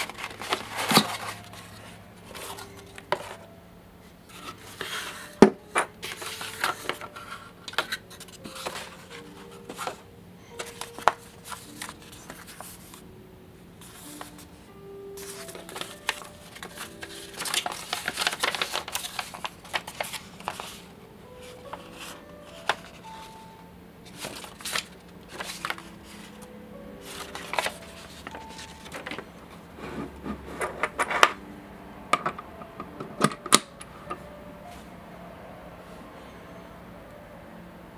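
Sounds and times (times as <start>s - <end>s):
paper crinkling and rustling: 0.0s - 3.4s, 4.3s - 13.0s, 15.2s - 29.6s
soft background music: 0.0s - 37.9s.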